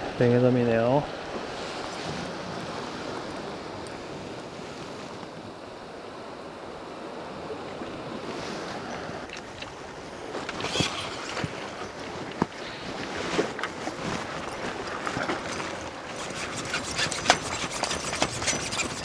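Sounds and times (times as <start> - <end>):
sea washing against rocks: 0.0 - 19.0
water splashes: 6.8 - 19.0.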